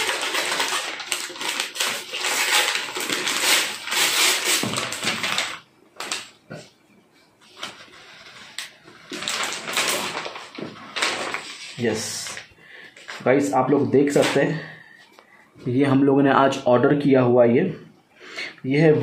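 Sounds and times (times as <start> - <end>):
paper crinkling and ripping: 0.0 - 6.3, 7.4 - 13.3.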